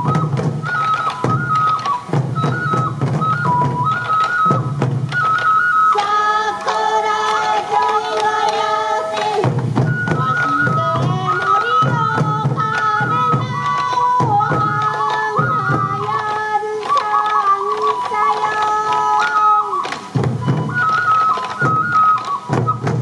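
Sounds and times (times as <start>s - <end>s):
bamboo flute melody: 0.0s - 23.0s
small taiko drums: 0.0s - 23.0s
people singing: 5.9s - 19.7s.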